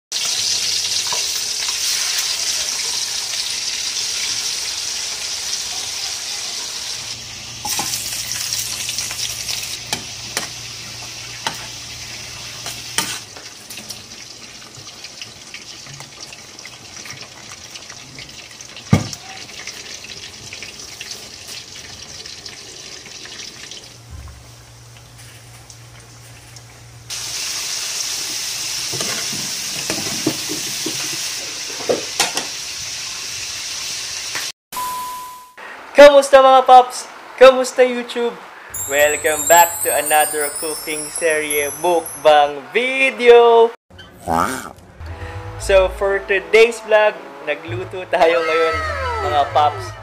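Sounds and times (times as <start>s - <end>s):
hot oil sizzling: 0.1s - 34.6s, 38.5s - 42.5s.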